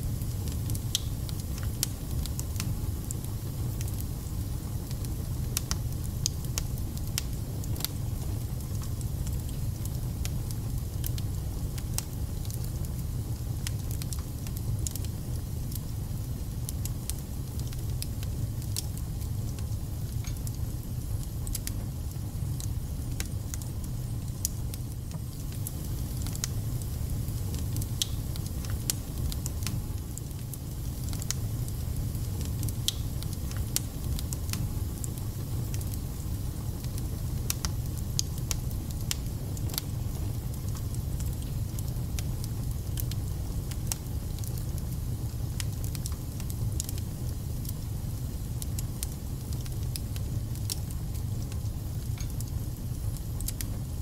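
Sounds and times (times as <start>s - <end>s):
flames rumbling: 0.0s - 54.0s.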